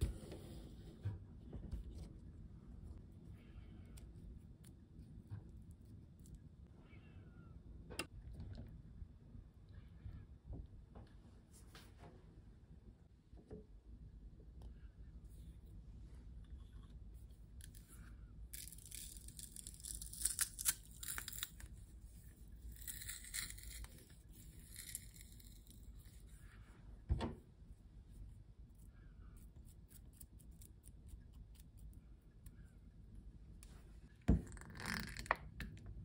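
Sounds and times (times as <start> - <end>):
garlic press crunching garlic: 18.5 - 26.2
thump: 27.1 - 27.4.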